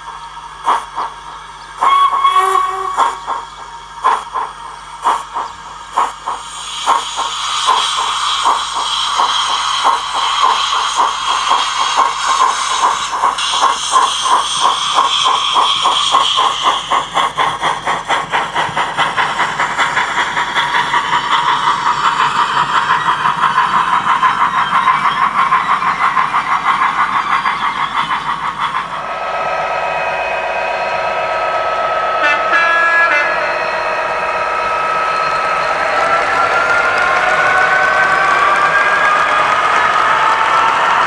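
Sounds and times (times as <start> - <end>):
model steam locomotive chuffing: 0.0 - 41.0
steady drone with held tones: 28.5 - 41.0.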